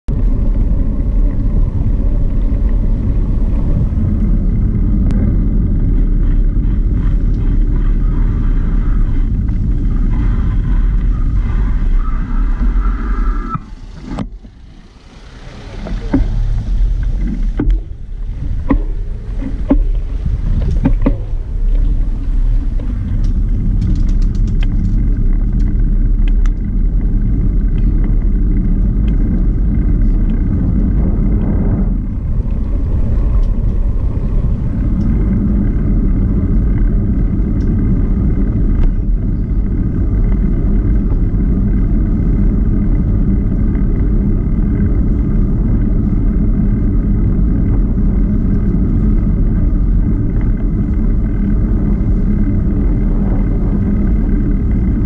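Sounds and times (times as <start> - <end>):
tyre noise on paved path: 0.0 - 55.0
wind buffeting microphone: 0.0 - 55.0
light clicks and ticks: 23.0 - 26.7.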